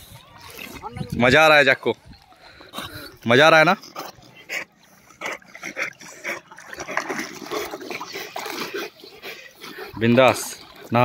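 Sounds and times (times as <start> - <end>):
water splashing around swimming dog: 2.6 - 11.0.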